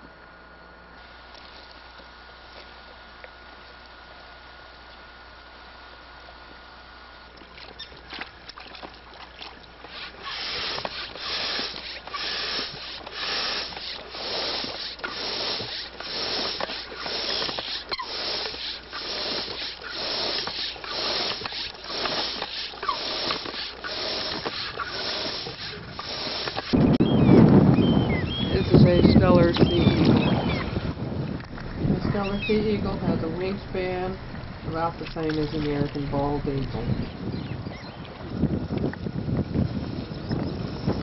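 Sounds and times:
kayak paddle splashing in water: 0:07.3 - 0:27.0, 0:33.5 - 0:36.8.

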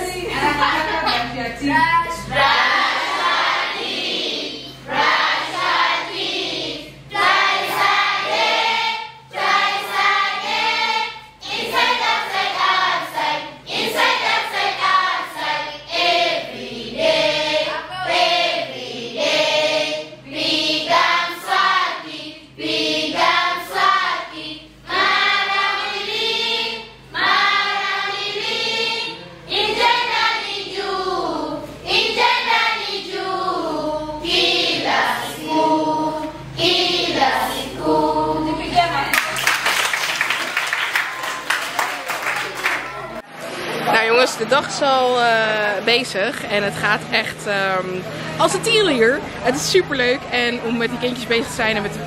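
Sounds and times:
children singing together: 0:02.2 - 0:38.6.

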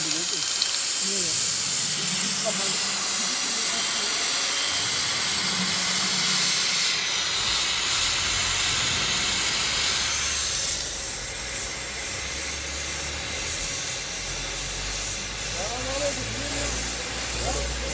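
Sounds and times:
plasma torch hissing: 0:00.0 - 0:17.9
low rumble: 0:01.4 - 0:11.5.

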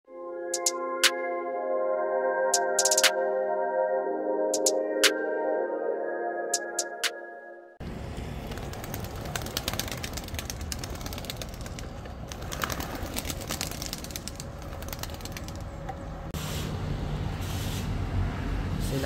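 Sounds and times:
pigeon wings flapping and clapping: 0:08.4 - 0:15.9.

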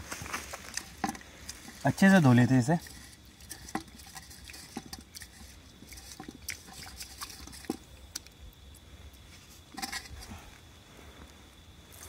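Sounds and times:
rice washing splashes and clicks: 0:00.5 - 0:08.8.

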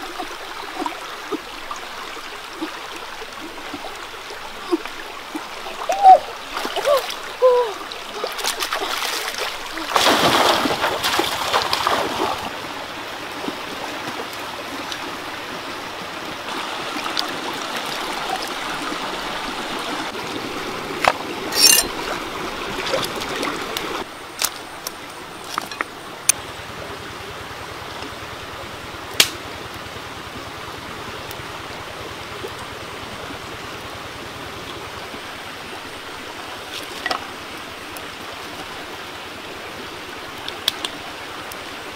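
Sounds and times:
water splashing: 0:00.0 - 0:12.7, 0:16.4 - 0:24.1
stream running over stones: 0:00.0 - 0:41.9.

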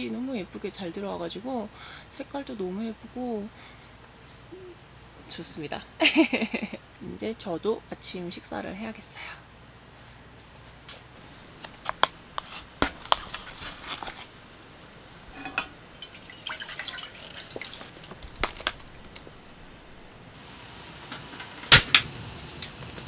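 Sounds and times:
soft rustling: 0:09.8 - 0:14.4.

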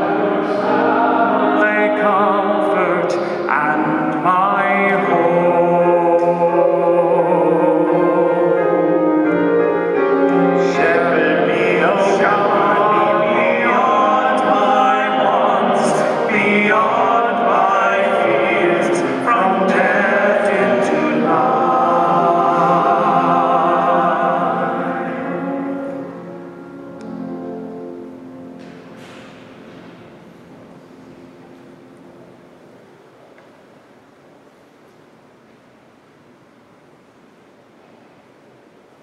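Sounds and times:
singer with strong vibrato: 0:00.0 - 0:09.7, 0:10.3 - 0:25.8
sustained accompanying chords: 0:00.0 - 0:33.0.

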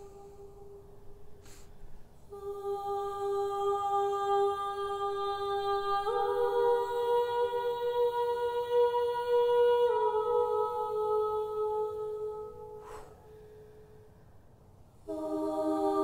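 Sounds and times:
voices humming a chant: 0:02.3 - 0:13.3, 0:15.1 - 0:16.0.

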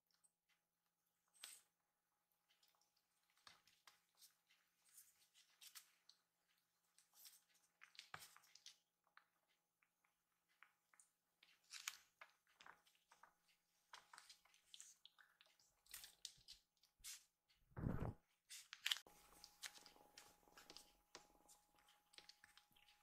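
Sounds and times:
dull low thump: 0:17.8 - 0:18.2.

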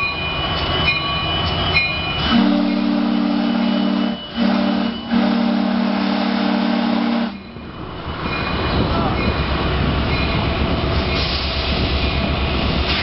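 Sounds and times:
rolling rumble of locomotive: 0:00.0 - 0:13.0
train horn blasts: 0:02.2 - 0:07.4.

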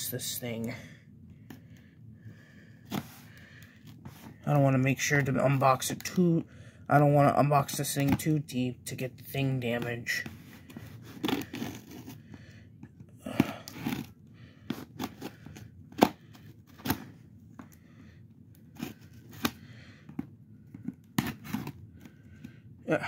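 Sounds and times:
scissors cutting cardboard: 0:11.0 - 0:12.2, 0:13.4 - 0:14.1, 0:14.7 - 0:17.0, 0:20.8 - 0:21.8.

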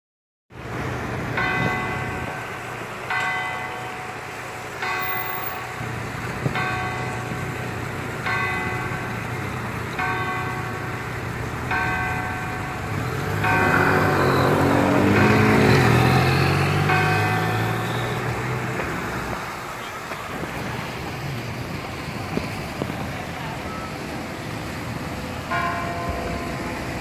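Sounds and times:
church clock bell striking: 0:01.3 - 0:19.7, 0:25.4 - 0:27.0.

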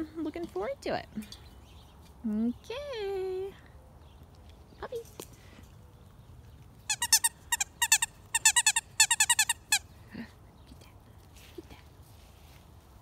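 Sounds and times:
dog toy squeaker squeaking: 0:06.9 - 0:09.8.

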